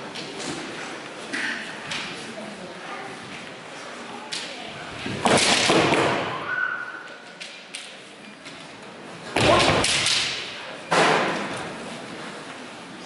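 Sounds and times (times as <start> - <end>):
bamboo swords striking: 9.4 - 11.3.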